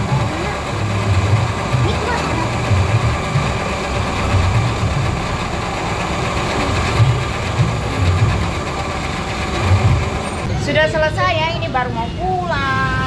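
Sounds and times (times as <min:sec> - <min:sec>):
motor traffic engine rumble: 0:00.0 - 0:13.0.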